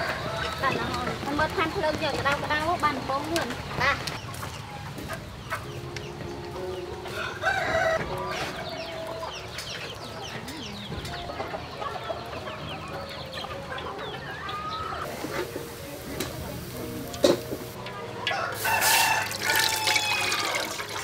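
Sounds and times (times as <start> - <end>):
chickens clucking: 0.0 - 21.0
rooster crowing: 7.1 - 8.3, 18.3 - 20.7.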